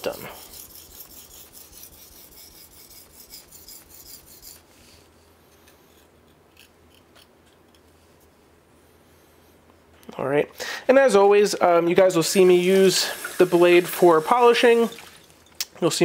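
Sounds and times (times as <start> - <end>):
knife scraping on whetstone: 0.0 - 7.7.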